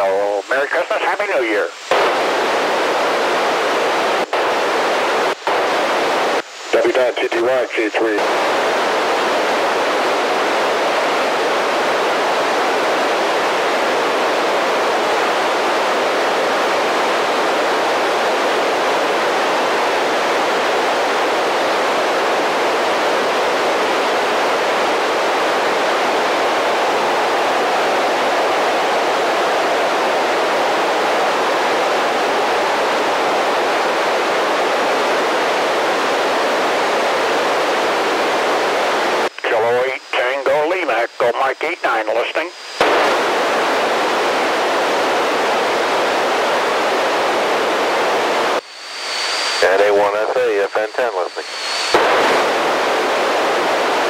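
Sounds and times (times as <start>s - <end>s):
radio static hiss: 0.0s - 54.0s.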